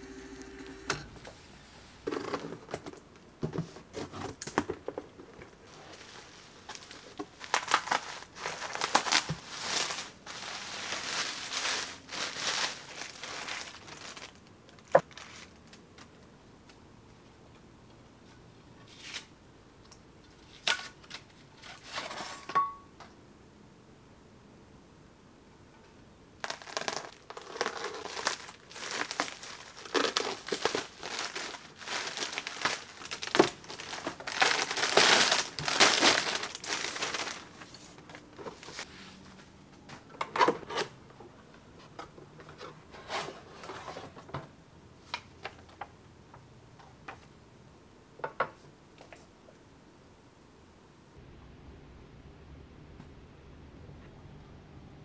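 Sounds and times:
plastic bag crinkling and tearing: 5.6s - 15.8s, 26.4s - 38.9s.

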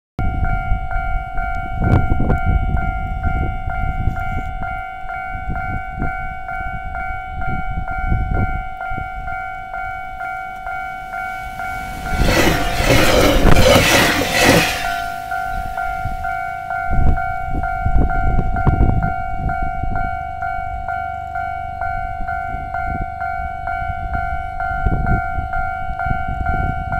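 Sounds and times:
level-crossing alarm bell ringing: 0.2s - 26.9s
electric train rushing past: 10.8s - 17.1s.

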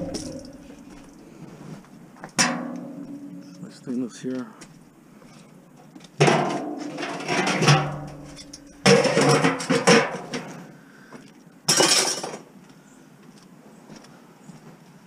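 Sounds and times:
metal scrap clanging onto pile: 0.0s - 1.2s, 6.2s - 10.6s, 11.7s - 12.4s.

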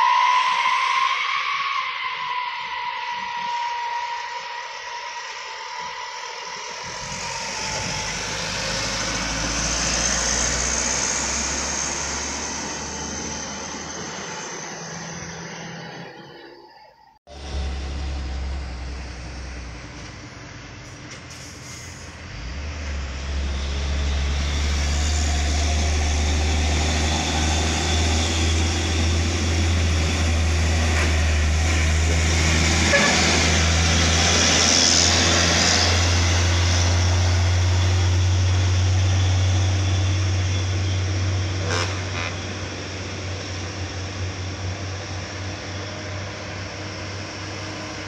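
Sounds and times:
truck diesel engine working hard: 5.7s - 16.2s, 17.3s - 48.0s.

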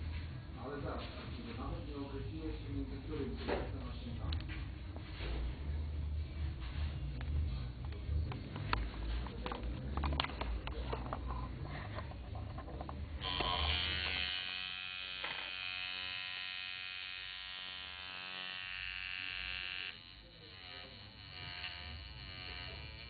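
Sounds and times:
tattoo machine buzzing: 13.2s - 23.0s.

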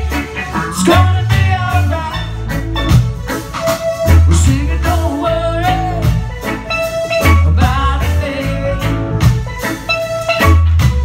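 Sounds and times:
bass notes: 0.0s - 11.0s
drums: 0.0s - 11.0s
guitar: 0.0s - 11.0s
person singing: 0.4s - 2.4s, 4.3s - 6.2s, 7.4s - 9.2s.

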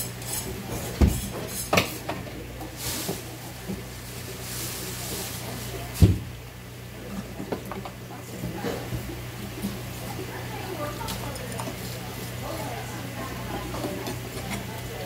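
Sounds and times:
knife scraping fish: 0.0s - 1.9s.

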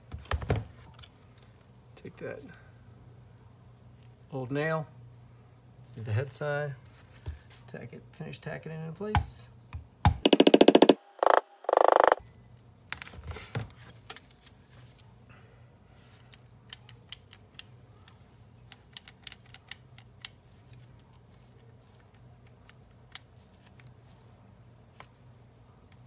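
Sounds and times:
hammer tapping a nail: 9.2s - 12.2s.

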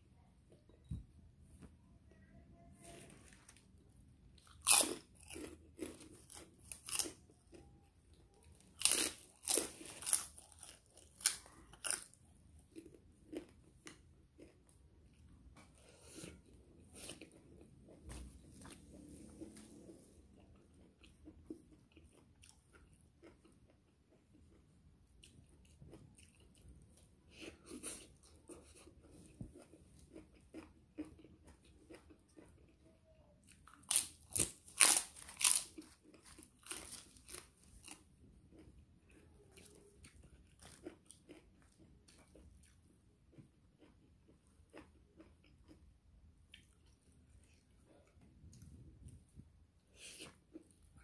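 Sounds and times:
crackers crunching: 4.4s - 7.7s, 8.4s - 15.2s, 33.4s - 45.8s
chewing: 4.4s - 51.0s.

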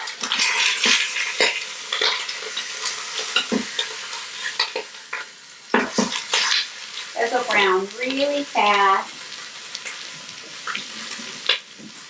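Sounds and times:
meat sizzling in hot oil: 0.0s - 12.0s.

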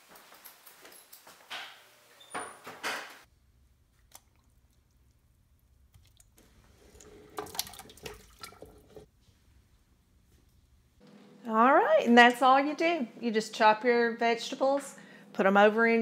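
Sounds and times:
pot knocking and water sloshing: 4.0s - 9.1s
food plopping into water: 7.3s - 9.1s.

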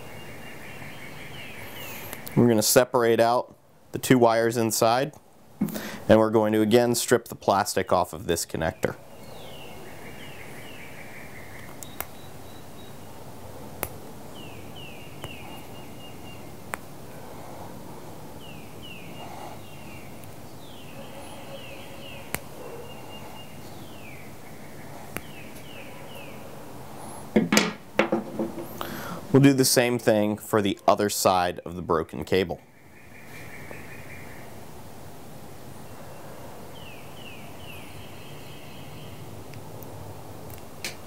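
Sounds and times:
birds chirping: 0.0s - 34.6s, 35.7s - 39.4s
background hiss: 0.0s - 41.0s
clatter of handling at table: 27.4s - 28.8s.

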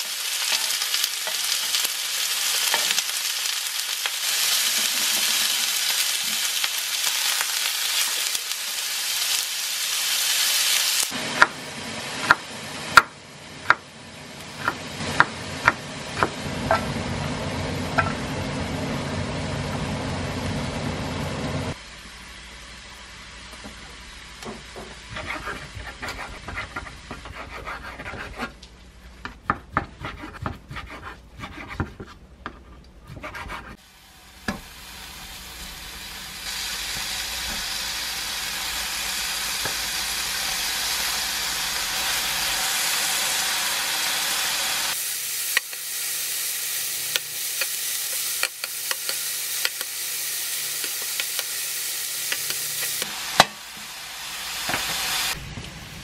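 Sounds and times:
meat sizzling on grill pan: 0.0s - 13.7s, 33.8s - 55.5s
knife chopping on wooden board: 29.2s - 33.7s.

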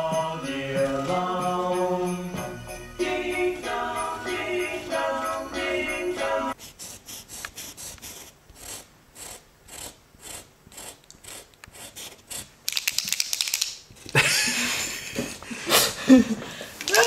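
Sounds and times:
marker scratching on rough wall: 6.6s - 12.6s.

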